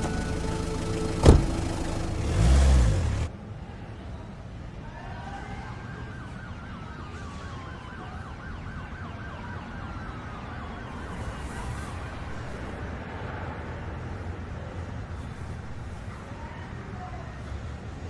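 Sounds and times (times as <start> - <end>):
emergency siren yelping: 0.0 - 3.0, 5.6 - 11.9
low city rumble: 0.0 - 18.0.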